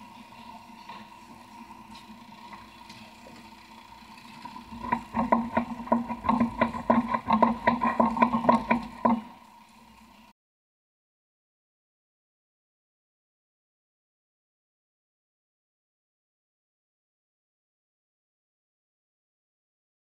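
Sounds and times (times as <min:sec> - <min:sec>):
boat engine drone: 0:00.0 - 0:10.3.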